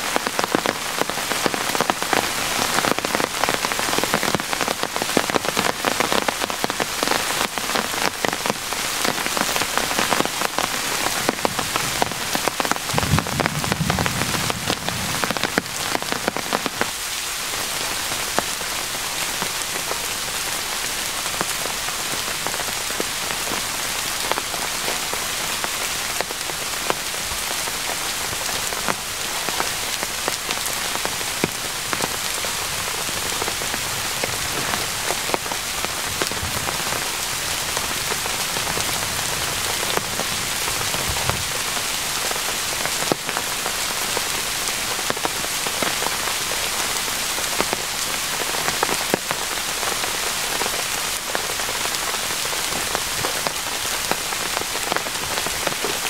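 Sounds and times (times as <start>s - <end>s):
steady rain falling: 0.0s - 56.0s
close raindrop impacts: 0.1s - 20.0s.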